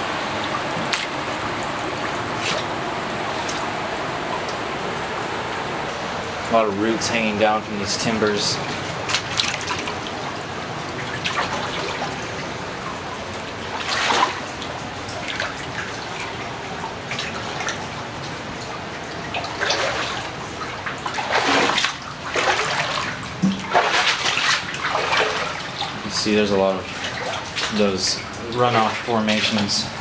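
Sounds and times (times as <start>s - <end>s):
water dripping and trickling: 0.0s - 30.0s
footsteps splashing through water: 0.2s - 1.2s, 2.0s - 3.7s, 8.6s - 10.2s, 10.9s - 12.3s, 13.5s - 17.9s, 18.6s - 29.8s.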